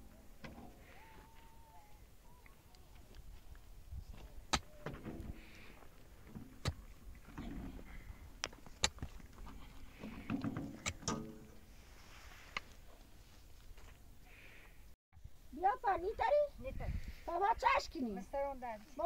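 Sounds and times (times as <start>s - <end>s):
mattock hitting stony soil: 4.1s - 7.7s, 8.4s - 9.4s, 10.2s - 11.6s.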